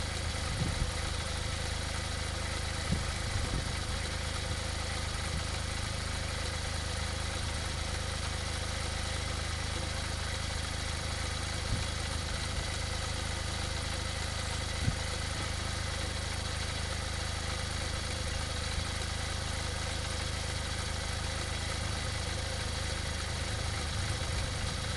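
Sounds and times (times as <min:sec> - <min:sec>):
small car engine idling: 0:00.0 - 0:24.9.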